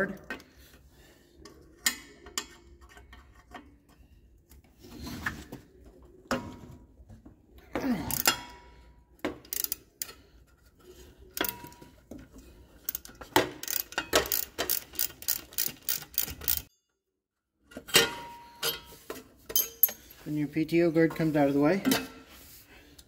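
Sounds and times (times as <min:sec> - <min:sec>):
socket ratchet clicking: 0:12.9 - 0:16.7
metal tool clinks: 0:19.5 - 0:20.1.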